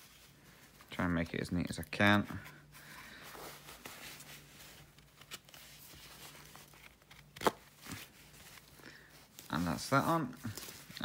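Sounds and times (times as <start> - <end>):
fabric rustling: 2.3 - 11.0.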